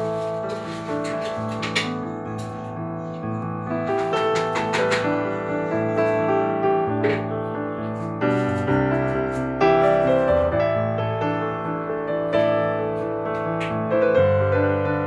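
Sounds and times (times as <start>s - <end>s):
slow keyboard melody: 0.0s - 15.0s.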